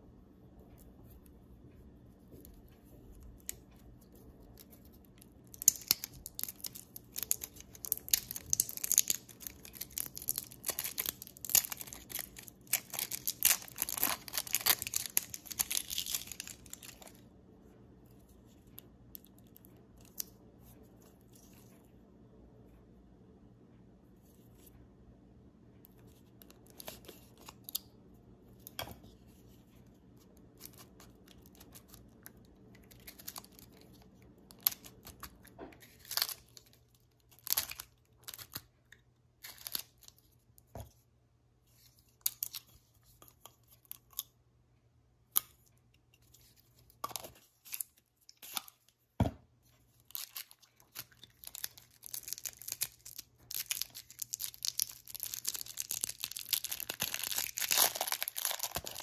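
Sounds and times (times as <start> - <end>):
cellophane wrapper crinkling: 4.6 - 17.2, 30.3 - 38.7, 39.4 - 40.4, 49.7 - 59.0.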